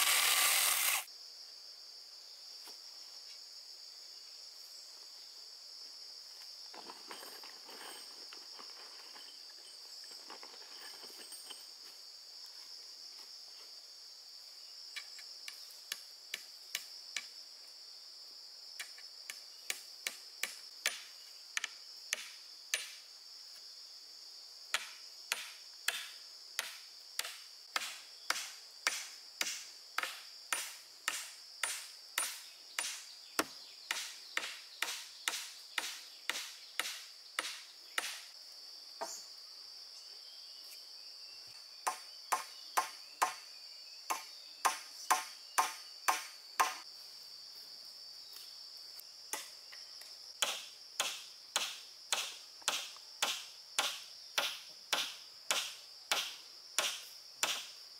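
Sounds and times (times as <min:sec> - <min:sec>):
high-pitched insect chorus: 0:00.0 - 0:57.9
sharp chopping strikes: 0:24.8 - 0:38.3, 0:44.1 - 0:46.8, 0:50.4 - 0:57.7.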